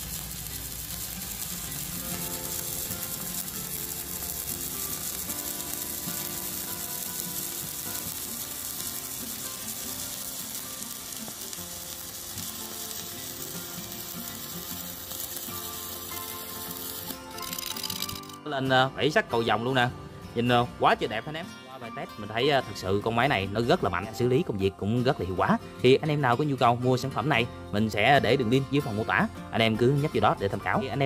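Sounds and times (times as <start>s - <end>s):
welding arc sizzling: 0.0s - 18.4s.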